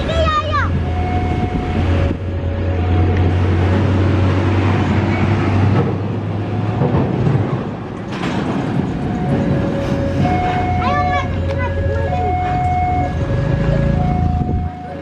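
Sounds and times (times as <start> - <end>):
trucks and cars driving over crossing: 0.0 - 15.0
two-note warning signal: 9.1 - 15.0.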